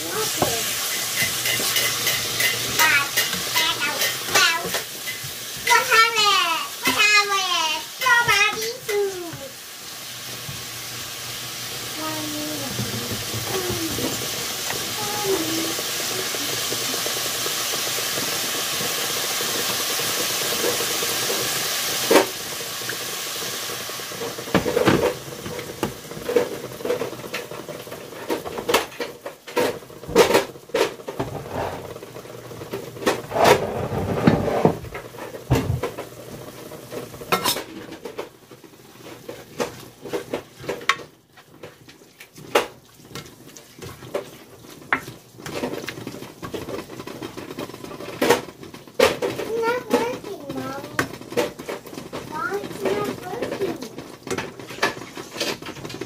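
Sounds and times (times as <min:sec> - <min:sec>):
spatula scraping a pan: 0:00.0 - 0:09.6, 0:30.8 - 0:35.6, 0:38.9 - 0:56.0
meat sizzling in a skillet: 0:00.0 - 0:56.0.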